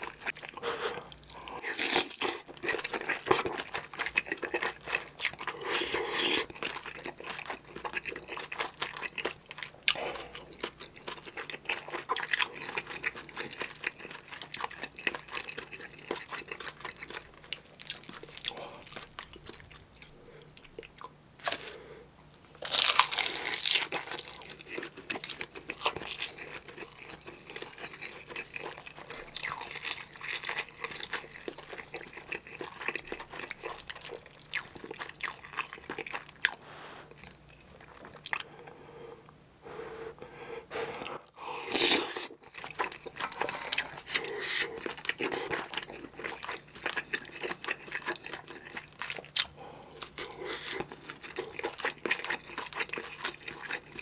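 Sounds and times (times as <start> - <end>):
crunching food: 0.0 - 38.6, 40.9 - 54.0
person chewing food: 0.0 - 54.0
wet mouth sounds: 40.7 - 46.1.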